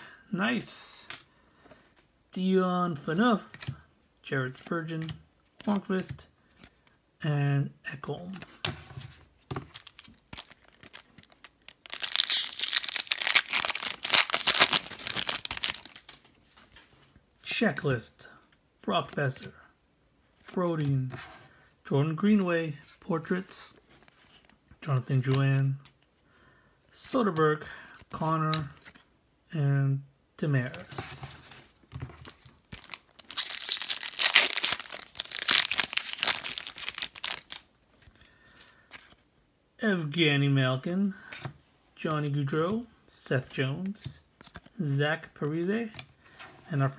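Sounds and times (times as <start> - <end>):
foil wrapper crinkling and tearing: 9.8 - 16.2, 32.8 - 37.7.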